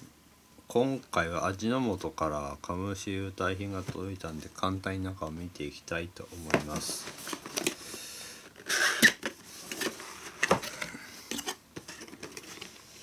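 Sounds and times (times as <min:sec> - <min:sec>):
cardboard rustling: 0:06.3 - 0:07.9, 0:08.5 - 0:13.0.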